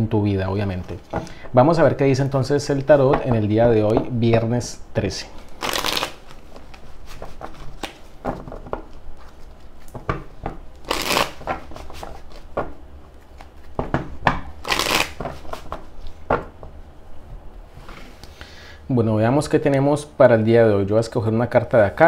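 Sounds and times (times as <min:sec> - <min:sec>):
card deck riffling: 0:05.5 - 0:08.1, 0:10.8 - 0:12.5, 0:14.6 - 0:15.8
cards slapping and fluttering: 0:05.6 - 0:10.2, 0:10.8 - 0:12.6, 0:14.6 - 0:15.8.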